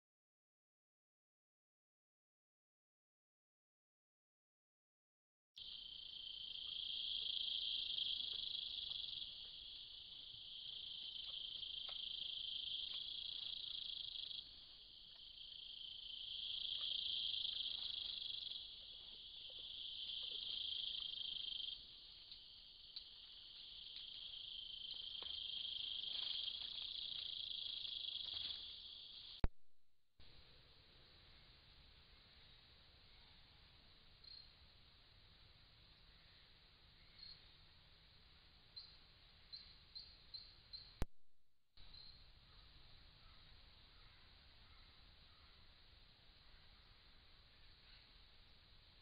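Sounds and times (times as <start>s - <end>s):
insects trilling: 5.6s - 29.4s.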